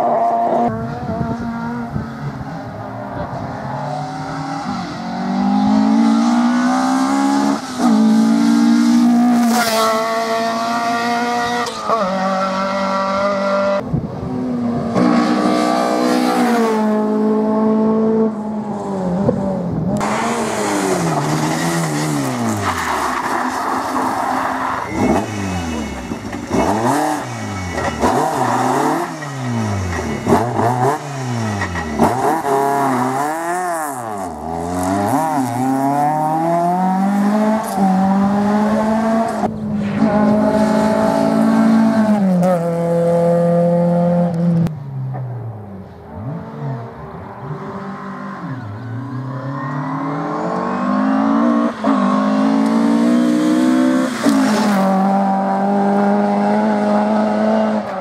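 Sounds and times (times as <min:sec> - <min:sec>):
rally car engines revving: 0:00.0 - 0:58.0.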